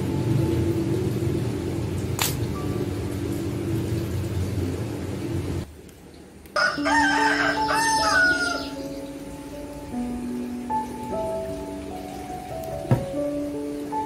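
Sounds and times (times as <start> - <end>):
rooster crowing: 6.6 - 8.9.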